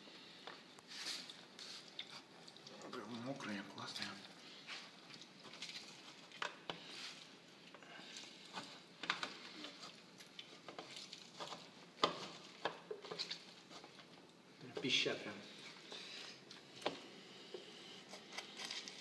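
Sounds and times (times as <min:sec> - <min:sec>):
wet squishing of orange pulp: 0:01.2 - 0:14.5.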